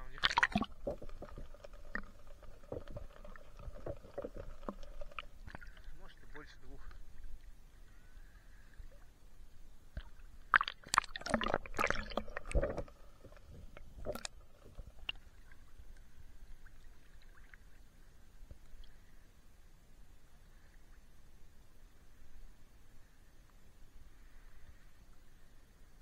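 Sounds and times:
faint water lapping: 0.0s - 9.2s
sea water splashing and gurgling: 0.0s - 9.2s, 9.9s - 18.2s.

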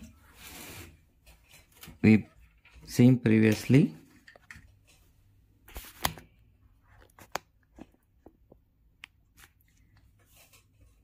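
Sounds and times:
soft clicks and rustles of cables: 1.1s - 11.0s.

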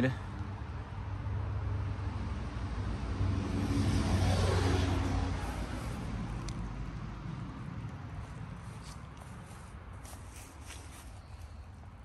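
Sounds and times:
broad rushing noise: 3.1s - 10.9s.

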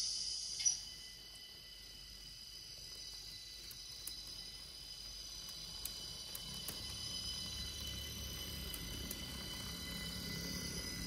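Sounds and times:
model train high-pitched whine: 0.0s - 11.0s.

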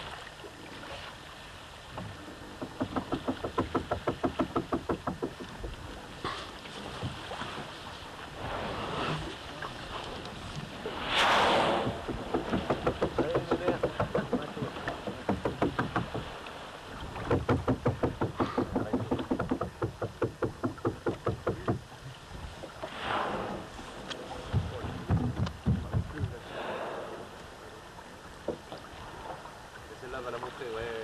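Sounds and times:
water splashing: 0.0s - 31.0s
wind rumbling on microphone: 1.8s - 29.5s
boat engine chugging: 11.9s - 16.2s, 17.2s - 21.9s.

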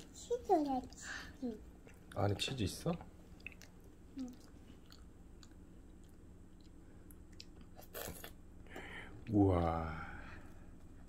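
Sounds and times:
chewing food: 3.3s - 8.4s.

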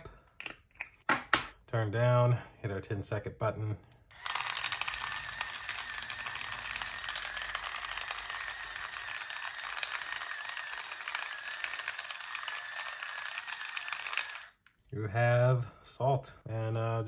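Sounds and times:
grinder motor whining: 4.1s - 14.6s.

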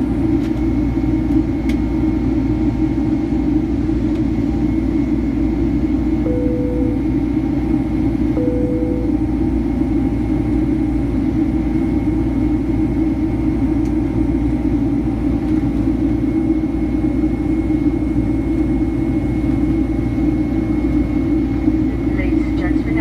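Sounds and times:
airliner cabin roar: 0.0s - 23.0s
faint high whine: 6.2s - 7.3s, 8.3s - 9.4s.

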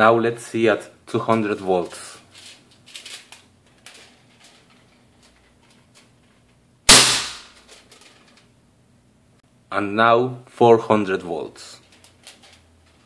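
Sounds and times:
capacitor discharge crack: 6.8s - 8.5s.

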